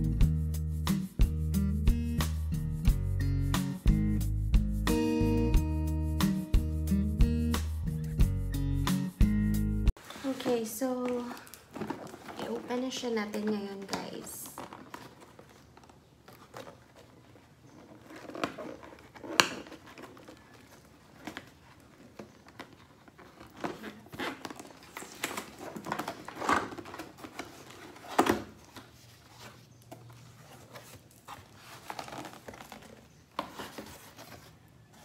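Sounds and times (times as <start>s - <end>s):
cardboard box being opened: 10.0s - 35.0s.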